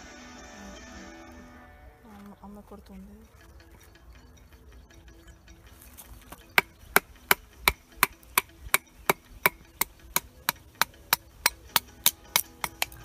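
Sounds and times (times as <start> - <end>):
wooden baton striking knife spine: 6.6 - 13.0.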